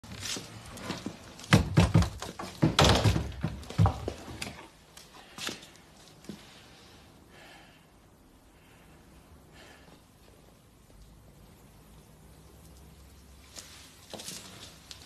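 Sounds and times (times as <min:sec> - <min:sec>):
heavy thuds and knocks: 0:01.2 - 0:04.6.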